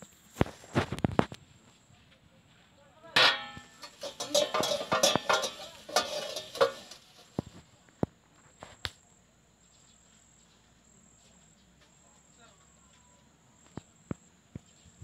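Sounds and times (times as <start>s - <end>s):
plates and utensils clinking: 3.2s - 7.5s
scrubber scraping plastic plate: 3.3s - 7.3s.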